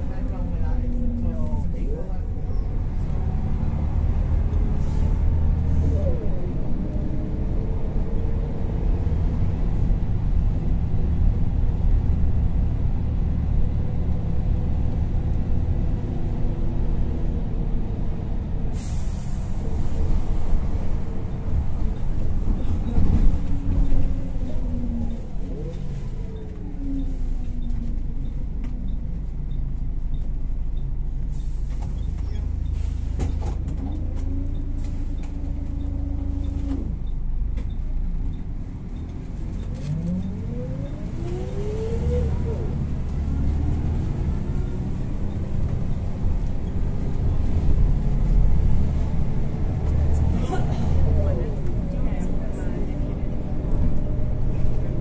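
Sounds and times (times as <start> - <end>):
bus diesel engine droning: 0.0 - 55.0
air brakes hissing: 18.7 - 20.7, 31.3 - 33.4.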